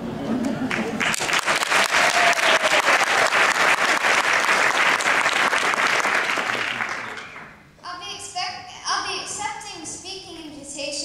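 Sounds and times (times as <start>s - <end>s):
audience applauding: 0.5s - 7.6s.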